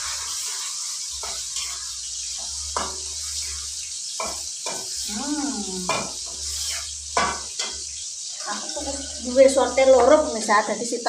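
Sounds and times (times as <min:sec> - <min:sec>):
spatula scraping a pan: 0:00.0 - 0:10.4
food sizzling in a wok: 0:00.0 - 0:11.0
person humming: 0:05.1 - 0:05.9.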